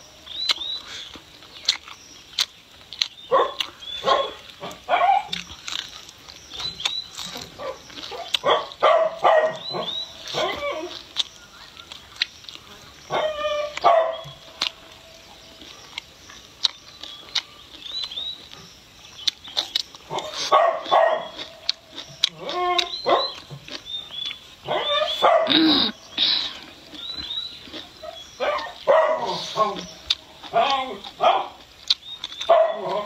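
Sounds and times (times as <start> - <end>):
person chewing: 0.2 - 33.0
dog barking: 3.3 - 5.4, 7.6 - 11.0, 13.1 - 14.4, 20.1 - 21.5, 22.4 - 23.4, 24.7 - 25.7, 28.0 - 29.8, 30.5 - 31.6, 32.4 - 33.0.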